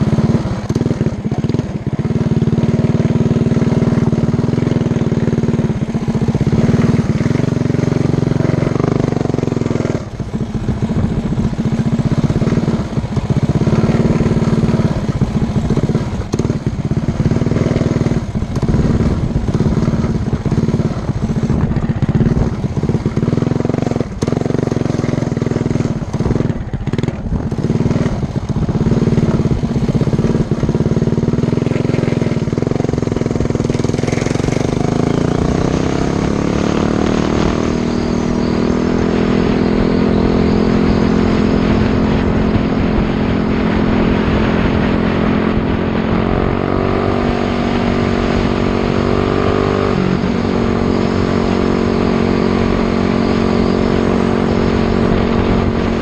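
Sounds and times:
mini bike engine running: 0.0s - 56.0s.

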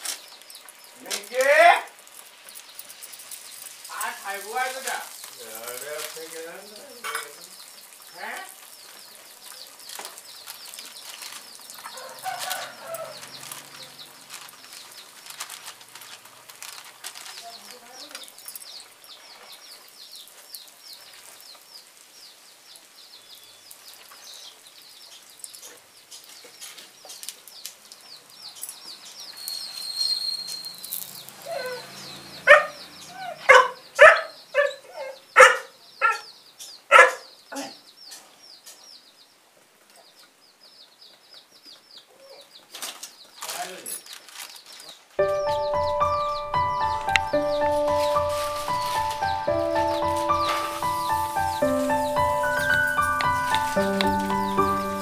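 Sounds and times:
food deep-frying in oil: 0.0s - 32.3s.

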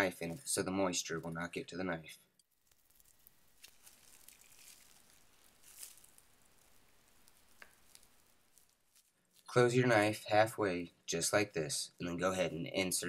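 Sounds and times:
plastic wrap crinkling: 2.4s - 9.6s.

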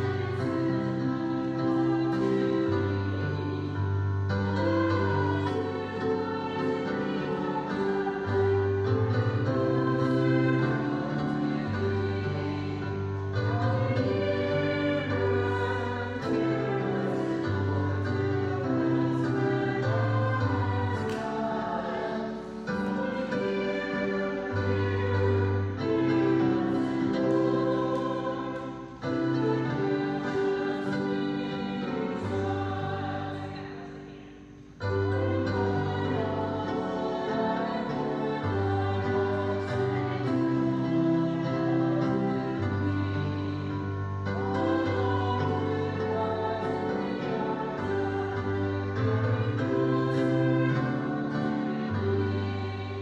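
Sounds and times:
gospel choir singing: 0.0s - 53.0s.

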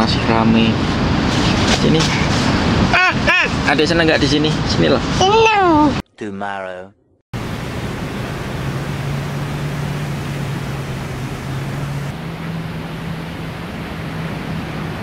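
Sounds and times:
low steady drone: 7.4s - 15.0s
surf breaking on sandy beach: 7.4s - 15.0s.

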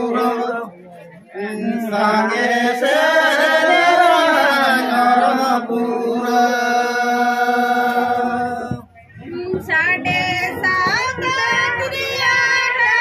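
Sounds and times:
group of men singing: 0.0s - 8.9s.

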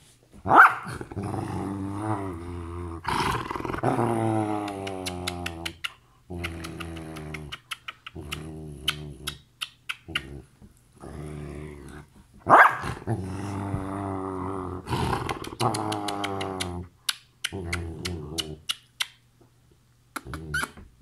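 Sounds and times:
dog growling and moaning: 0.9s - 9.5s, 10.1s - 12.2s, 12.8s - 18.7s
kissing smacks: 4.6s - 10.4s, 15.3s - 19.2s, 20.1s - 20.8s.

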